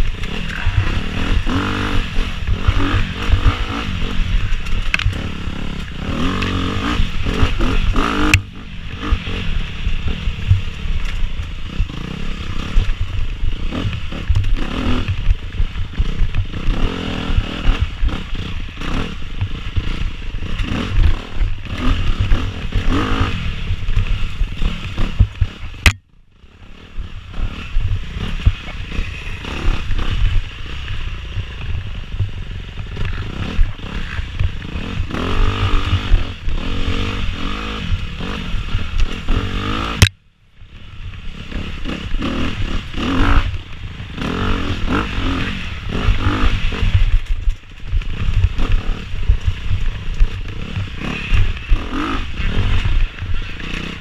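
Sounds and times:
dirt bike engine revving: 0.0 - 40.1, 40.7 - 54.0
wind rumble on microphone: 0.0 - 54.0
sharp click: 25.8 - 26.0
bike clattering and scraping: 41.4 - 54.0.

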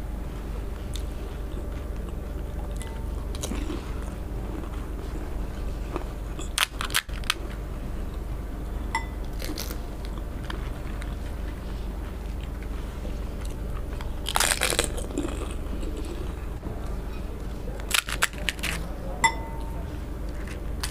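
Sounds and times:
crisp shells crunching: 5.9 - 7.6, 9.3 - 10.2, 14.0 - 16.4, 17.8 - 18.9.

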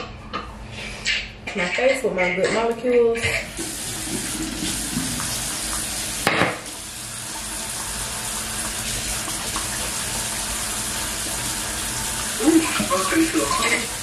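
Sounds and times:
tap water running: 3.2 - 14.0.

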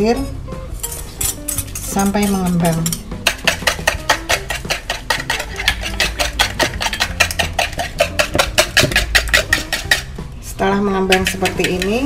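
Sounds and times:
whisk clicking against plastic bowl: 3.3 - 10.0, 11.1 - 12.0.

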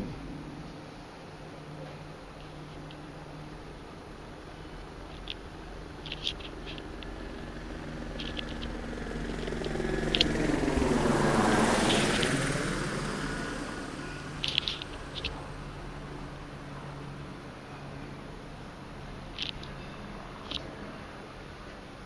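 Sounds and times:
faint steady hum: 0.0 - 22.0
vehicle passing by: 0.0 - 22.0
small clicks: 6.0 - 7.2, 8.1 - 8.8, 9.4 - 10.4, 14.4 - 15.4, 19.3 - 19.8, 20.4 - 20.7.

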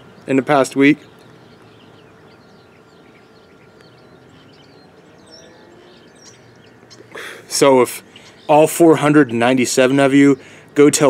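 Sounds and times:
faint bird chirps: 1.0 - 9.4.

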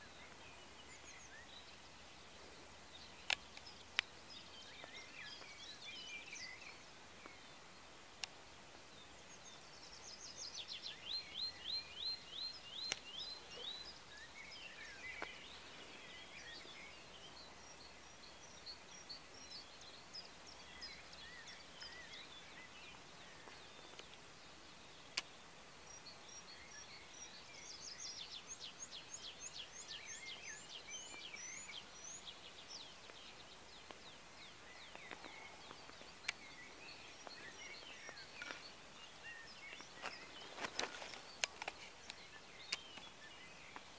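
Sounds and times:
bird chirps: 0.0 - 43.9
faint steady hiss: 0.0 - 43.9
songbirds singing: 0.0 - 43.9
sharp clicks: 3.2 - 4.1.

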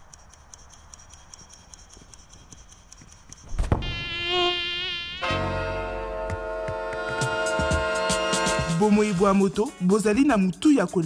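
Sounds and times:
faint rapid ticking: 0.0 - 3.6
wavering whining buzz: 0.0 - 8.5
music with held chords: 5.8 - 9.8.

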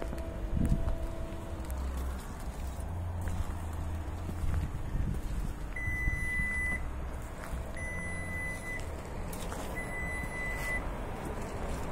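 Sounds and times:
high warning beeps: 5.8 - 6.9, 7.5 - 8.9, 9.7 - 10.9.

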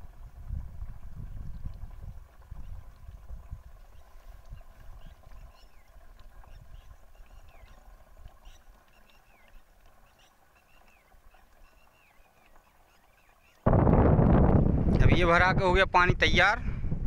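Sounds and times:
birds chirping: 3.8 - 13.7.

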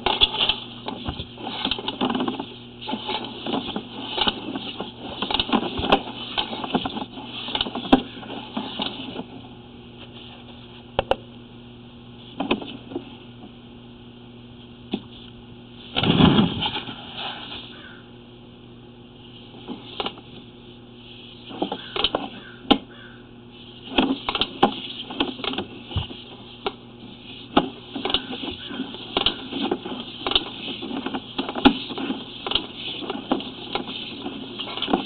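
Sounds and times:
cable clattering and rattling: 0.0 - 9.4, 23.8 - 35.0
steady electrical hum: 0.0 - 35.0.

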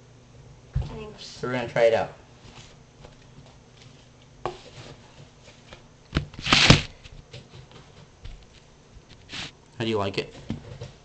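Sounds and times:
loud rustling scrape: 9.3 - 9.6.

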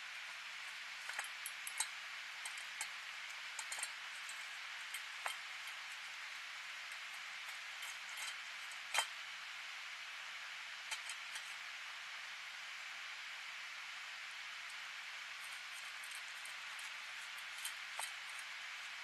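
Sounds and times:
steady hiss: 0.0 - 19.0
cats eating from metal bowl: 0.6 - 9.2, 15.3 - 19.0.

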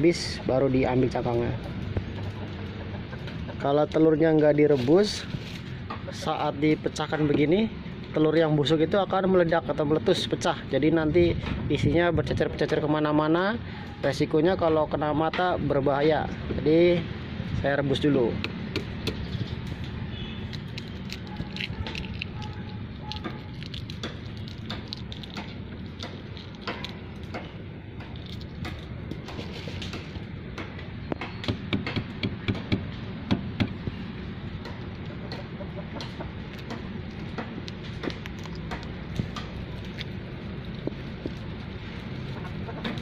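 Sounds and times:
chickens clucking: 2.0 - 3.8, 35.0 - 36.5, 42.3 - 43.0
eggshells cracking: 20.4 - 29.4, 36.5 - 42.2.

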